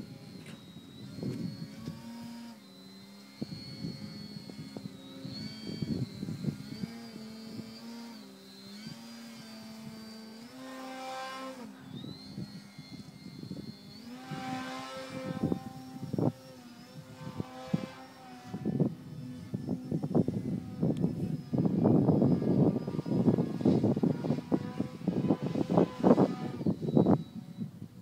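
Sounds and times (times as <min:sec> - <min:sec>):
model airplane motor droning: 0:00.0 - 0:28.0
wind noise on microphone: 0:00.0 - 0:28.0.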